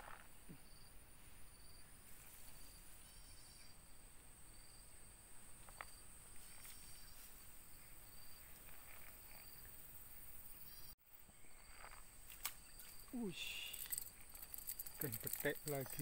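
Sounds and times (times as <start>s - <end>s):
insect chorus whine: 0.0s - 16.0s
short high insect chirps: 4.5s - 16.0s.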